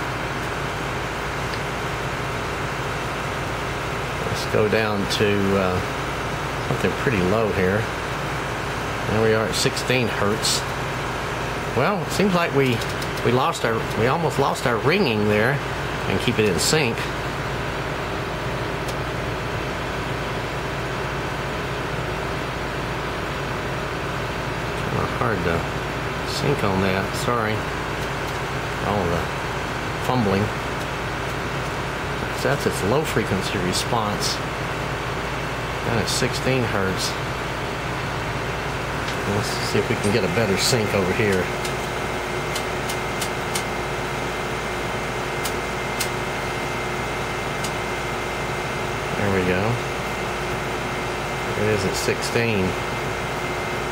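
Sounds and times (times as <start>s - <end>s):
low electrical hum: 0.0s - 53.9s
control knobs clicking: 12.5s - 14.1s, 39.0s - 43.8s, 45.4s - 46.2s, 47.6s - 47.8s.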